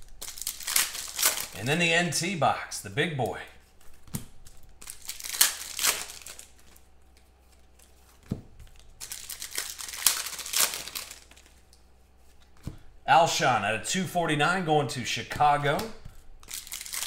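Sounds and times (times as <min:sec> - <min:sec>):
foil wrapper crinkling: 0:00.0 - 0:01.7, 0:03.6 - 0:12.5, 0:16.4 - 0:17.0.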